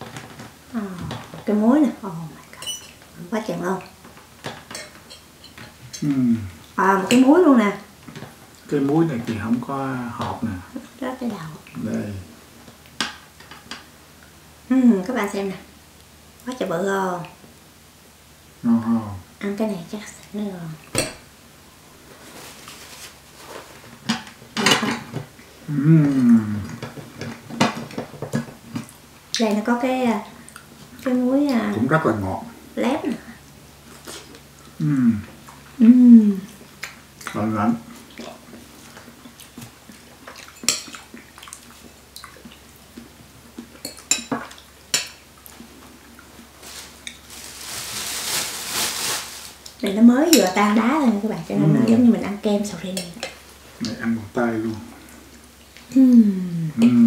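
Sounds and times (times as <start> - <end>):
soft rustling hiss: 0.0 - 57.0
utensils on plates: 2.5 - 3.0
person humming mmm: 6.0 - 6.6, 18.6 - 19.2, 25.6 - 26.8, 34.8 - 36.6, 55.9 - 57.0
cutlery clinking on plates: 24.1 - 25.2.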